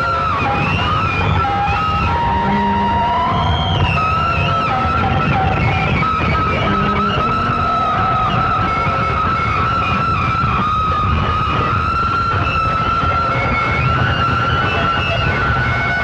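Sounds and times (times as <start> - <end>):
industrial noise music: 0.0 - 16.0.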